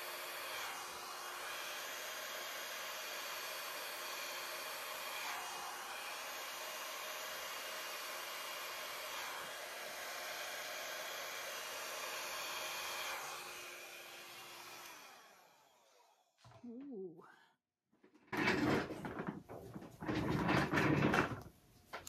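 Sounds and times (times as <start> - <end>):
hair dryer blowing air: 0.0 - 16.4.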